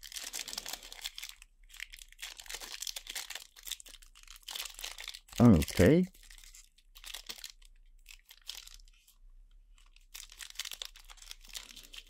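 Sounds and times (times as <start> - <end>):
foil wrapper crinkling and tearing: 0.0 - 9.0, 9.8 - 12.0.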